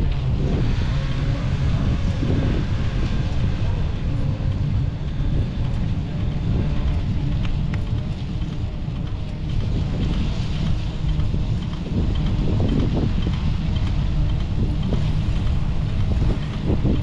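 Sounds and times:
faint voices: 0:00.0 - 0:17.0
wind buffeting microphone: 0:00.0 - 0:17.0.

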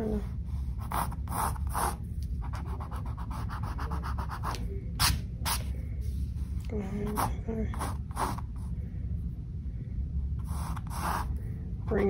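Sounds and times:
steady low hum: 0:00.0 - 0:12.0
pencil scratching on canvas: 0:00.8 - 0:05.6, 0:10.4 - 0:11.3.

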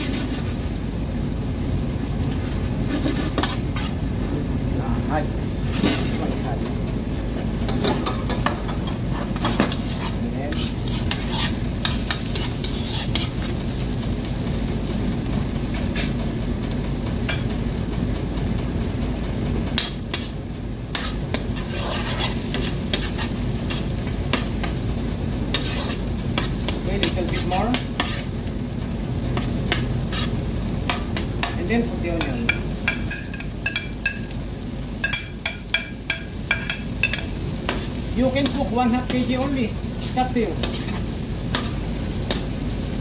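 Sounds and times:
garlic sizzling in butter: 0:00.0 - 0:43.0
metal spoon scraping pan: 0:02.9 - 0:04.0, 0:05.7 - 0:06.3, 0:07.8 - 0:13.6, 0:20.9 - 0:24.8, 0:25.5 - 0:28.3, 0:29.4 - 0:31.6, 0:35.0 - 0:42.6
spoon tapping on pan: 0:07.7 - 0:09.0, 0:32.2 - 0:34.3, 0:35.0 - 0:37.8.

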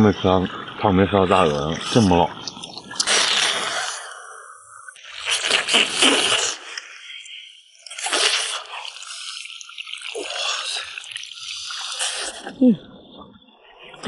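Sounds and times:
wet squelching eating sounds: 0:00.3 - 0:04.3, 0:05.0 - 0:14.0.

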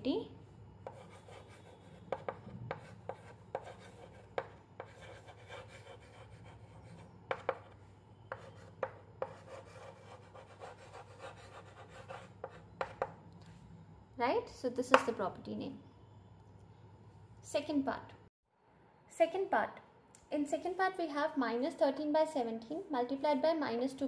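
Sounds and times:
chalk scratching on blackboard: 0:00.8 - 0:13.1
chalk tapping on board: 0:00.8 - 0:13.2.

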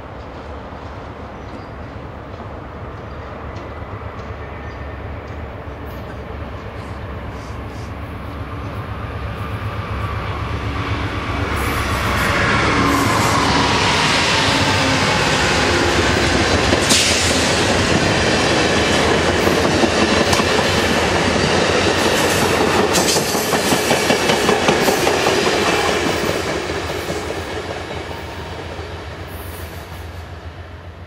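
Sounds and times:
train wheels clattering over rails: 0:13.0 - 0:30.1.

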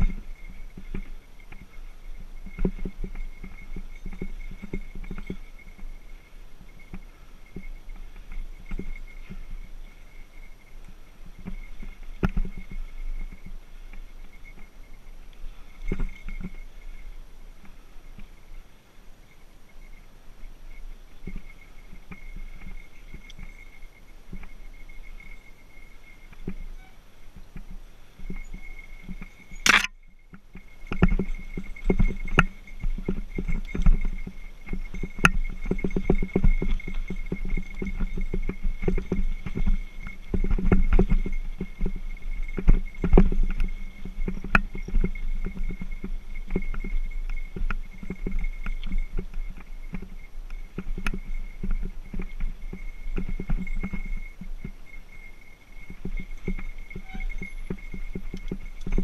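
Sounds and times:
bike rattling over bumps: 0:00.0 - 0:18.7, 0:19.6 - 0:59.0
bell jingling: 0:52.7 - 0:59.0.

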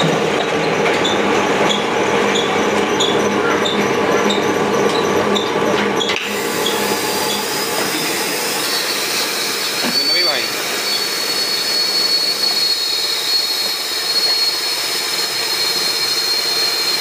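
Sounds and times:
machine humming: 0:00.0 - 0:14.0
short machine squeak: 0:01.0 - 0:17.0.

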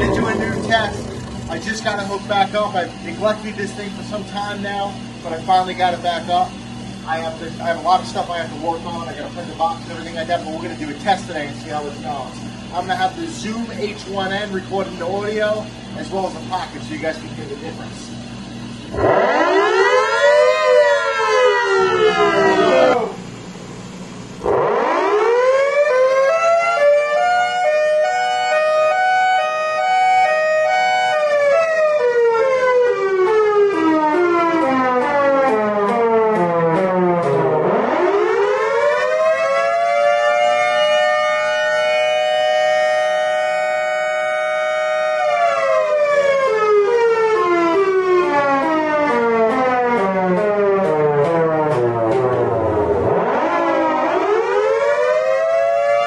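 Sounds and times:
siren wailing: 0:00.0 - 0:03.4, 0:18.9 - 0:23.3, 0:24.4 - 0:56.0.

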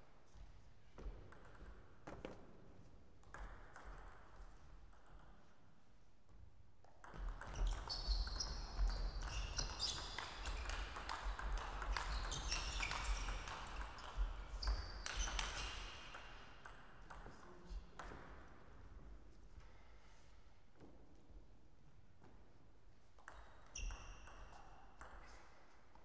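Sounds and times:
shoes squeaking on floor: 0:07.5 - 0:10.8, 0:11.9 - 0:13.5.

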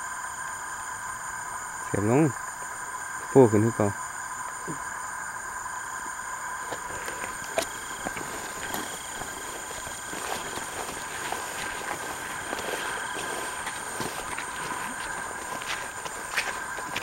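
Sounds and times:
night insects trilling: 0:00.0 - 0:17.0
footsteps in tall grass: 0:06.6 - 0:17.0.

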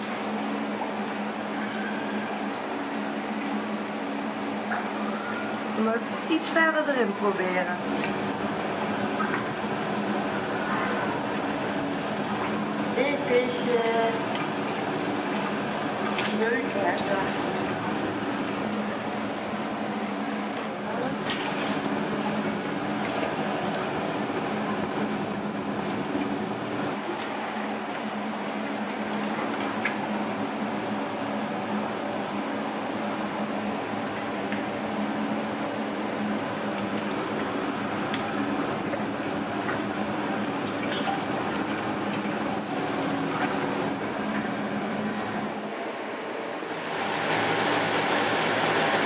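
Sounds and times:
aquarium water splashing: 0:00.0 - 0:49.0
pump humming: 0:00.0 - 0:49.0.

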